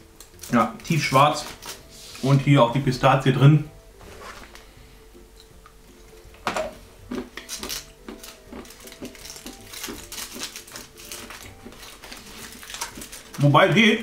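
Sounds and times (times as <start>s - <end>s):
foil wrapper crinkling: 0.4s - 2.3s, 7.4s - 14.0s.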